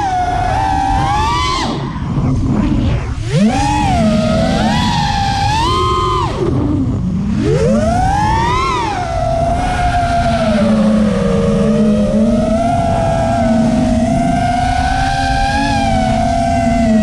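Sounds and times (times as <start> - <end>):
quadcopter motors whining: 0.0 - 17.0.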